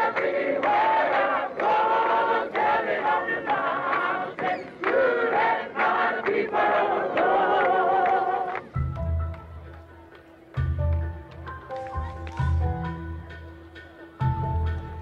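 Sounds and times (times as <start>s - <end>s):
group singing: 0.0s - 8.7s.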